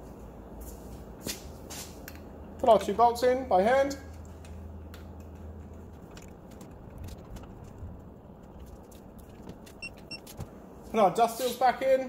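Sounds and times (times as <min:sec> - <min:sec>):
low steady hum: 0:02.2 - 0:11.2.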